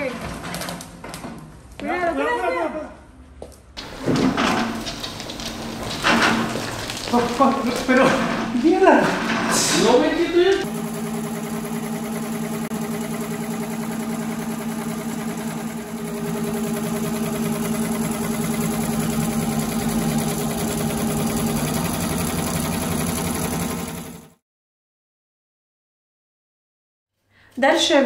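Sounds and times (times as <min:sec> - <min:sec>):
motor hum: 0:03.8 - 0:24.4.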